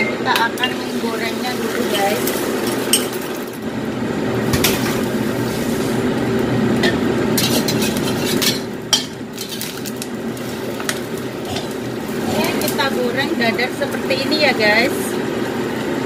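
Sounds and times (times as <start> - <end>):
range hood blower hum: 0.0 - 16.0
egg frying in oil: 0.3 - 16.0
metal spatula scraping wok: 6.9 - 8.8, 9.4 - 13.0.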